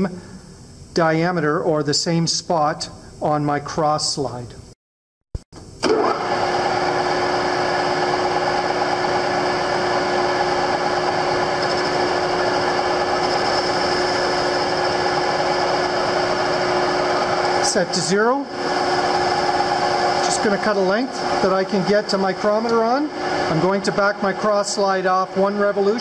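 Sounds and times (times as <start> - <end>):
metal lathe running: 5.8 - 26.0.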